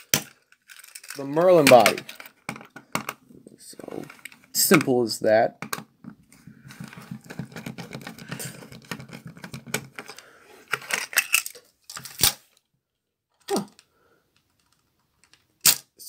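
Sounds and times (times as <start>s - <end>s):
plastic toy parts rattling: 0.0s - 3.2s, 5.7s - 12.6s.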